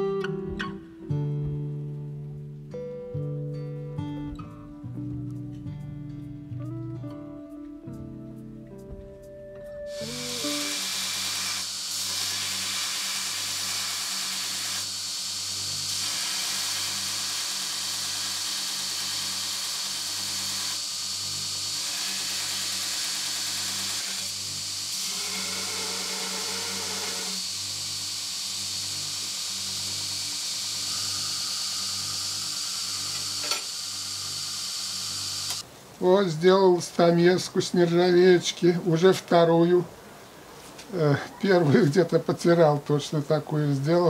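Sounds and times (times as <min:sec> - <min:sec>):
electric grinder grinding steel: 0:09.9 - 0:35.6.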